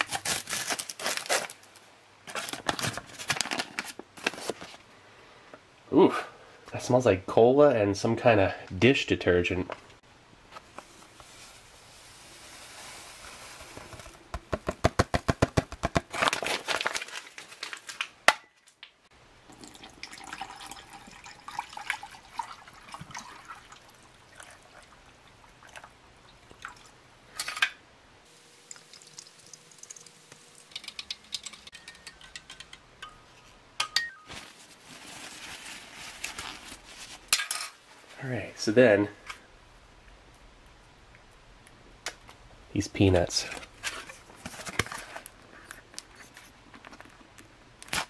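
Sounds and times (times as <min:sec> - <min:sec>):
water pouring into glass: 0:19.4 - 0:26.9, 0:28.7 - 0:31.6
spoon stirring clicking on glass: 0:30.7 - 0:33.2.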